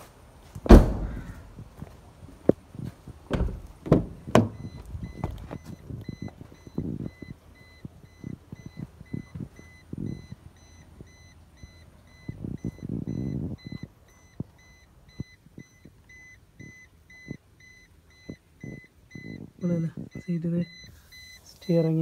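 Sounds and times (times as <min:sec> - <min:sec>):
handling rustles and knocks: 0:00.0 - 0:07.2
car warning chime beeping: 0:03.3 - 0:22.0.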